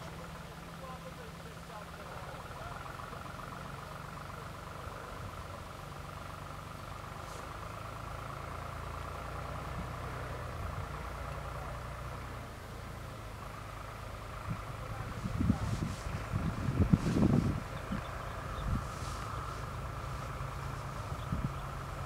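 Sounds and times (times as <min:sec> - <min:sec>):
low rumble: 0:14.5 - 0:22.0.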